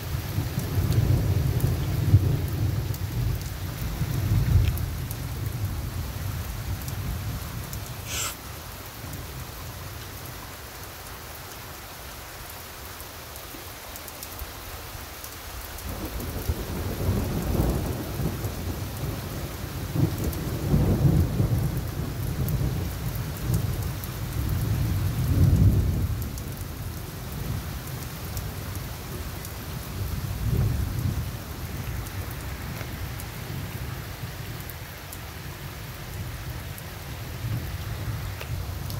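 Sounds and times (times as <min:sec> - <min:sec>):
steady rain: 0:00.0 - 0:38.9
rolling thunder: 0:15.9 - 0:23.8, 0:30.0 - 0:32.4.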